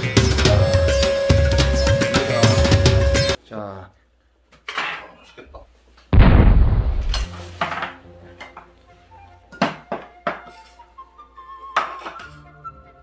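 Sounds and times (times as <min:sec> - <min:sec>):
loud thud: 0:06.2 - 0:07.3
faint background music: 0:07.3 - 0:13.0
dishes clinking on a table: 0:11.8 - 0:12.4.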